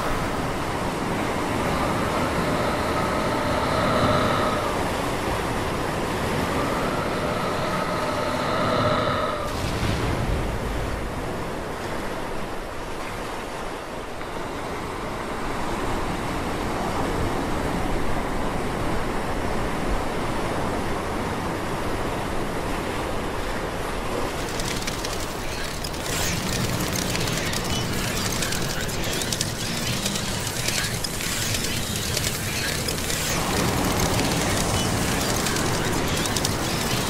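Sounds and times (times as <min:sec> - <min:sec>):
ocean waves surf: 0:00.0 - 0:37.0
crackling high layer: 0:24.3 - 0:37.0.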